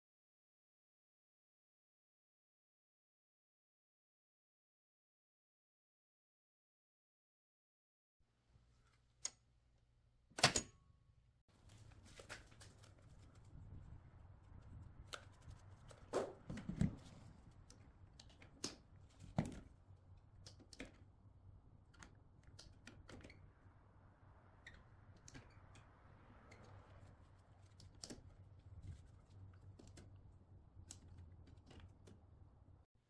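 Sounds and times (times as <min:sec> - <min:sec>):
circuit breaker snapping on: 0:10.4 - 0:10.8.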